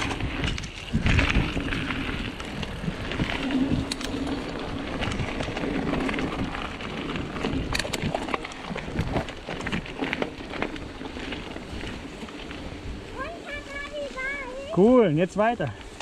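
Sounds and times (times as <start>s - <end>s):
wind on microphone: 0.0s - 9.9s
bike rattling over bumps: 0.0s - 16.0s
bike tyres on gravel: 0.0s - 16.0s.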